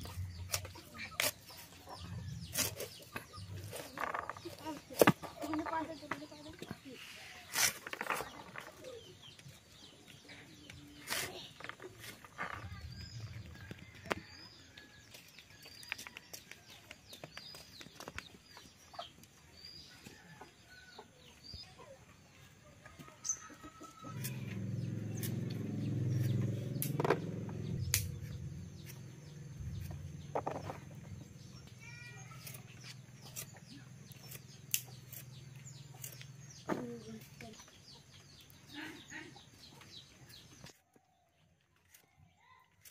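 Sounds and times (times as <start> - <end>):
blade slicing fruit clicks: 24.2 - 30.0, 33.2 - 35.4.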